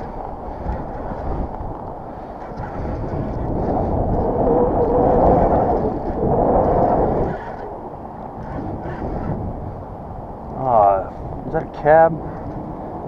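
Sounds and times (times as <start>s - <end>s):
strong wind buffeting microphone: 0.0s - 13.0s.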